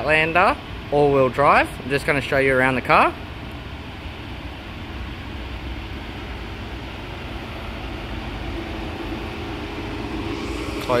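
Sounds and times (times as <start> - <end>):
car engine idling: 2.8 - 11.0.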